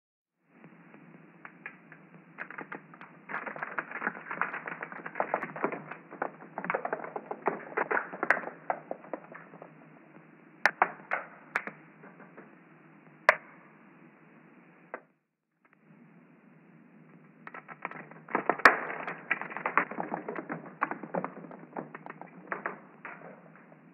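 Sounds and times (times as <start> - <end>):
seed pods crackling and bursting: 2.4 - 9.8.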